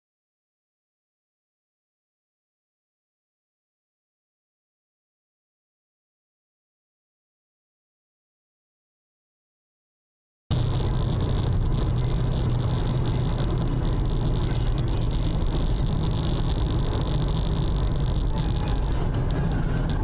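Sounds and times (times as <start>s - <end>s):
car interior road noise: 10.5s - 20.0s.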